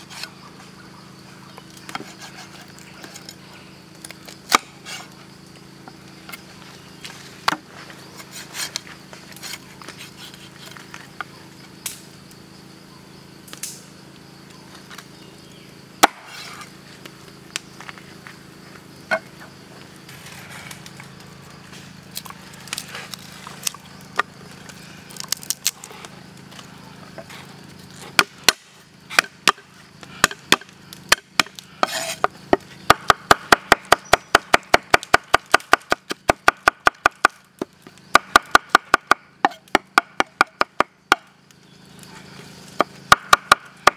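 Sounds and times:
cleaver chopping on wooden board: 0:16.0 - 0:16.3, 0:28.2 - 0:29.6, 0:30.2 - 0:41.3, 0:42.8 - 0:43.9.

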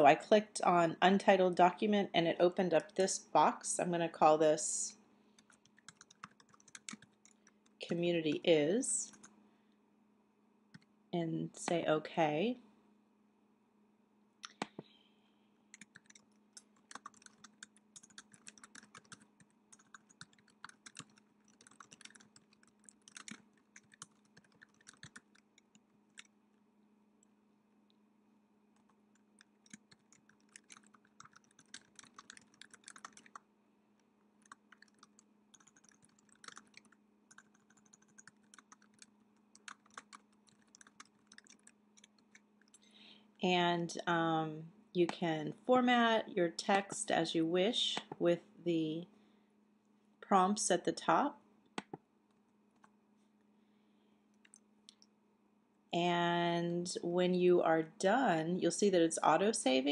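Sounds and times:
faint steady hum: 0:00.0 - 0:59.9
typing on computer keyboard: 0:05.4 - 0:07.8, 0:15.7 - 0:26.3, 0:28.8 - 0:33.4, 0:34.4 - 0:42.9.

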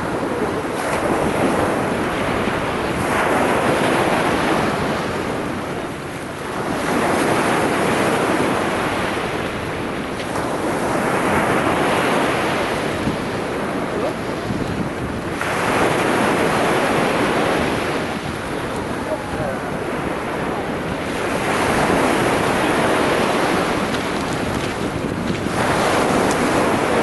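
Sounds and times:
sea waves breaking on shore: 0:00.0 - 0:27.0
wind on microphone: 0:00.0 - 0:27.0.

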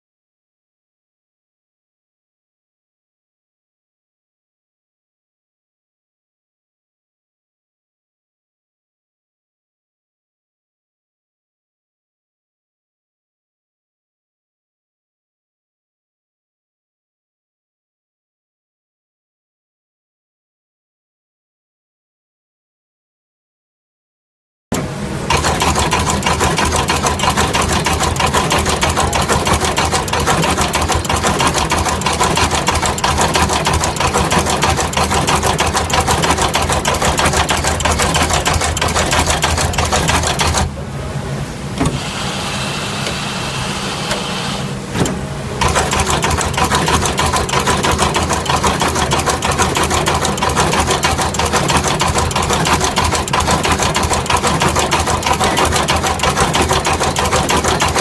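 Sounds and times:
high machine whine: 0:24.8 - 0:49.6.

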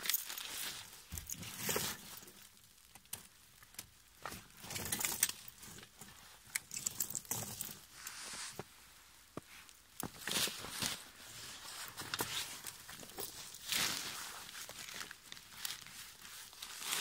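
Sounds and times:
rustling and crunching: 0:00.0 - 0:17.0
chain links clinking: 0:06.6 - 0:07.8.

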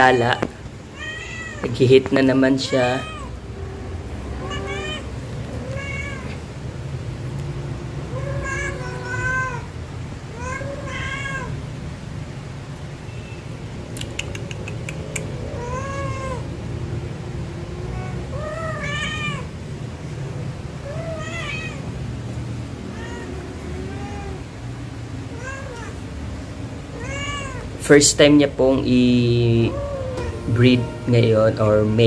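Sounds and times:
cat meowing: 0:00.0 - 0:06.5, 0:08.0 - 0:11.6, 0:15.2 - 0:16.6, 0:17.8 - 0:19.5, 0:20.8 - 0:26.1, 0:26.8 - 0:27.8, 0:29.1 - 0:32.0.

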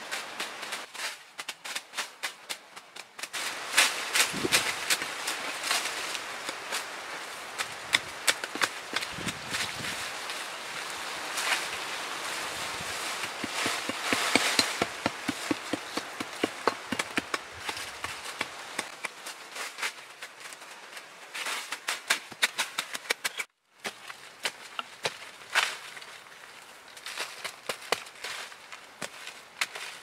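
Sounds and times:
sharp knocks and taps: 0:13.2 - 0:19.1.

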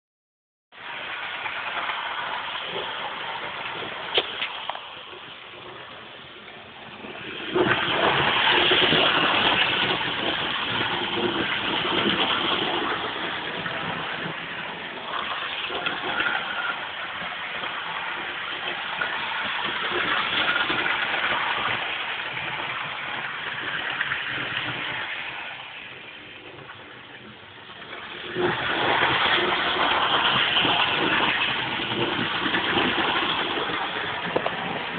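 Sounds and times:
wheels clattering on rails: 0:00.8 - 0:34.9
model train motor whirr: 0:15.0 - 0:26.7.

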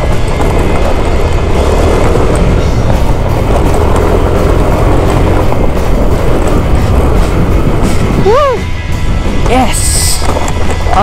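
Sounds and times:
bike rattling on gravel: 0:00.0 - 0:08.3
scooter engine running: 0:00.0 - 0:11.0
wind noise on microphone: 0:00.0 - 0:11.0.

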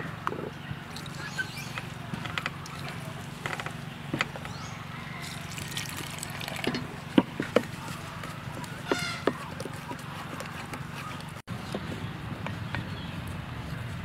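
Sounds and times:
water trickling into bowl: 0:00.9 - 0:02.0, 0:05.2 - 0:07.0.

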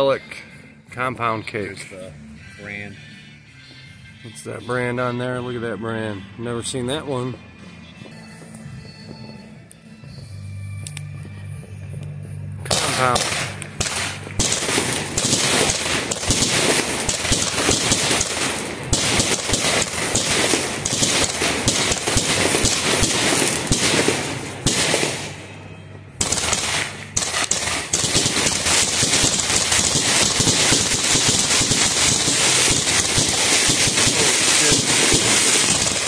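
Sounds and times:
firework pops and bangs: 0:12.7 - 0:25.3, 0:26.2 - 0:36.0
firework crackling: 0:12.7 - 0:25.5, 0:26.2 - 0:36.0.

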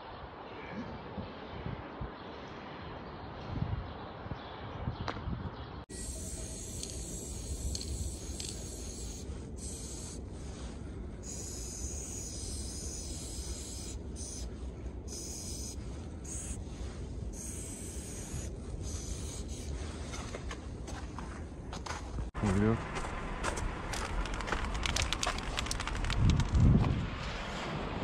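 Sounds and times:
steady low rumble: 0:05.4 - 0:28.0
spray paint can hissing: 0:05.9 - 0:14.5, 0:15.1 - 0:16.6, 0:17.3 - 0:19.8.

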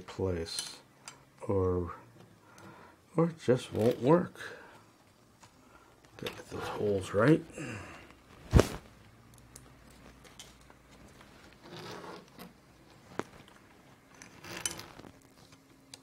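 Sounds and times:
soft scraping rustles: 0:09.9 - 0:15.7.

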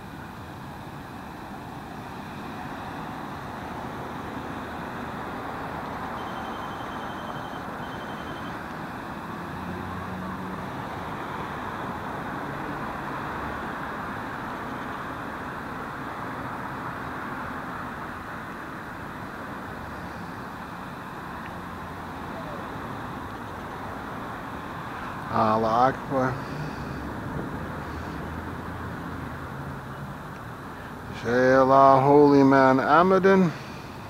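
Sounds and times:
distant road traffic: 0:00.0 - 0:34.0
faint pulsing high-pitched tone: 0:06.0 - 0:09.0.

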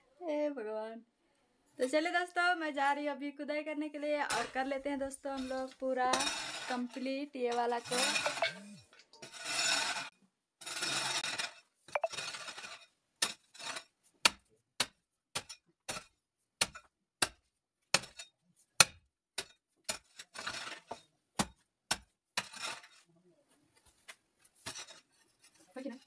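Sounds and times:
soil scraping and rustling: 0:04.3 - 0:12.8.

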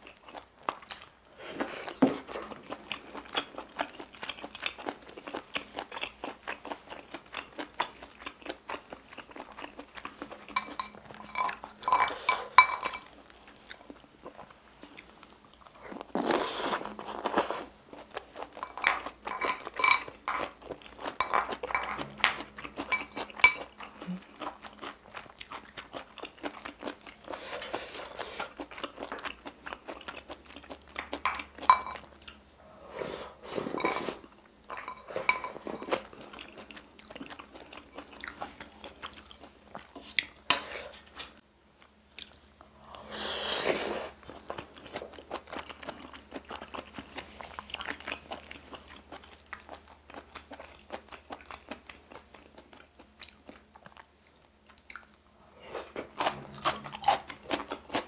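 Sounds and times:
slurping sauce: 0:43.0 - 0:44.2
wet chewing and lip smacks: 0:45.5 - 0:55.2.

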